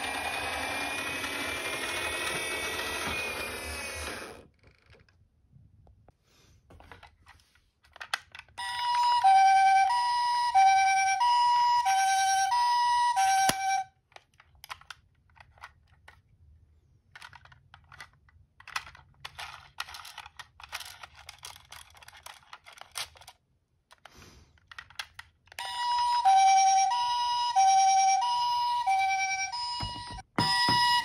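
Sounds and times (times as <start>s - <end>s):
two-tone ambulance siren: 8.6s - 13.9s, 25.6s - 31.0s
toy being handled clicks: 13.2s - 16.2s, 17.1s - 25.7s.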